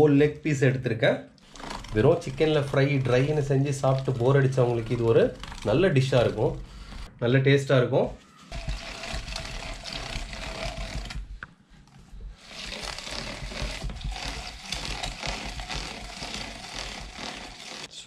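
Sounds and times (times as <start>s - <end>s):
hand-cranked meat grinder grinding: 1.4s - 7.1s, 8.5s - 11.5s, 12.3s - 18.0s.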